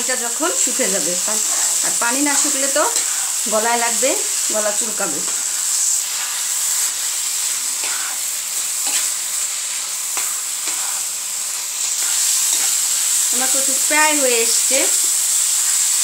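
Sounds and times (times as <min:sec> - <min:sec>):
greens sizzling in frying pan: 0:00.0 - 0:16.0
spatula scraping pan: 0:01.4 - 0:03.5, 0:05.2 - 0:13.2.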